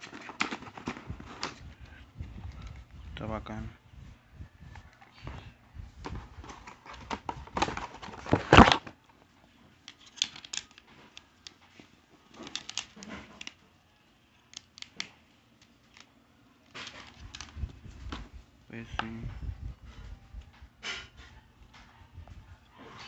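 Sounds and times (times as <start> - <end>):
plastic packaging rustling: 0.0 - 1.7, 6.0 - 9.0
plastic controller clicks: 12.4 - 13.6, 14.5 - 16.1.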